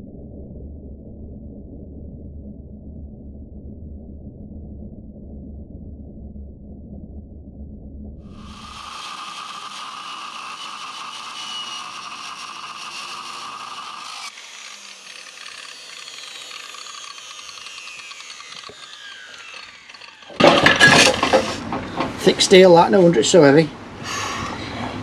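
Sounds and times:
angle grinder cutting steel: 8.3s - 21.7s
sudden clatter: 20.0s - 22.3s.

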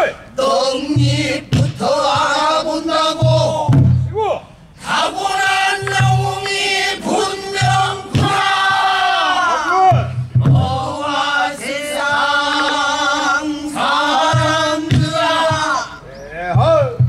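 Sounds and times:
man singing long bending notes: 0.2s - 3.8s
low drum thumps: 0.8s - 4.4s, 5.5s - 11.3s, 12.0s - 13.3s, 14.1s - 15.9s, 16.5s - 17.0s.

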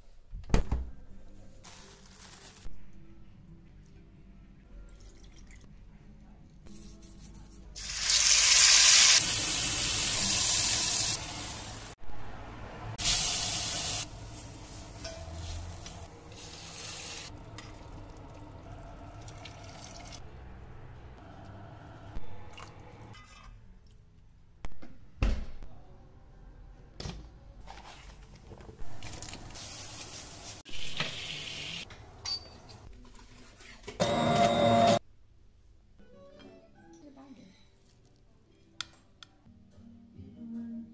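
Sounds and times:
liquid pouring into pot: 17.6s - 20.2s.

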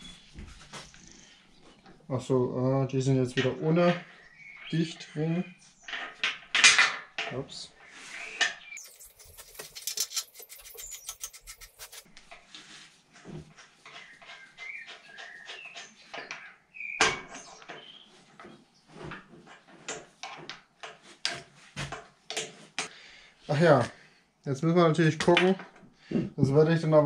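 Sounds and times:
metal fittings clicking and scraping: 8.8s - 12.1s.

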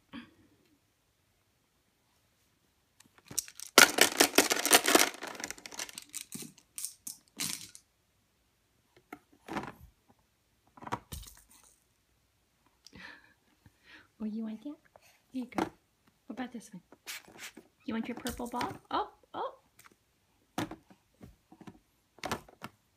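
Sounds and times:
plastic toys rattling: 3.2s - 7.8s.

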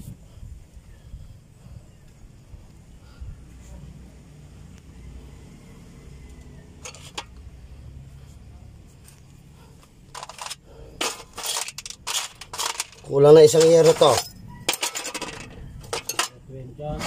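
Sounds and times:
metal parts clinking in metal pan: 6.8s - 7.3s, 10.1s - 16.4s.

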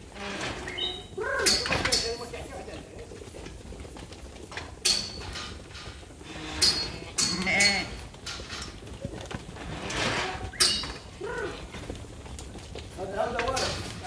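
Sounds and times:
metal gate panels clanking: 0.1s - 2.4s, 4.6s - 8.8s, 9.7s - 11.5s, 13.2s - 14.0s.

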